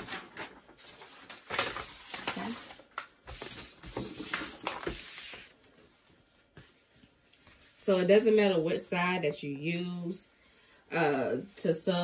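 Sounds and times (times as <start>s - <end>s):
paper rustling on a tabletop: 0.0s - 8.4s.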